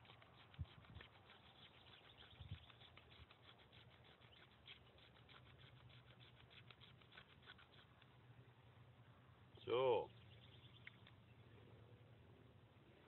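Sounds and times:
knife scraping fire-starter block: 0.0 - 8.1.

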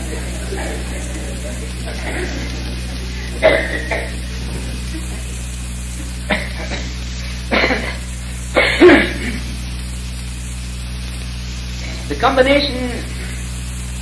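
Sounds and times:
mains hum: 0.0 - 14.0
recording hiss: 0.0 - 14.0
person clearing throat: 3.3 - 4.4, 6.3 - 9.6.

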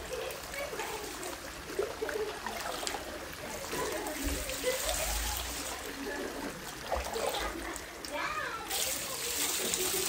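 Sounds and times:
water trickling into bath: 0.0 - 10.0.

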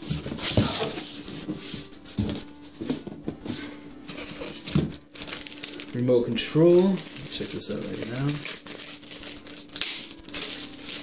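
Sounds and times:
plastic packaging rustling: 4.1 - 11.0.

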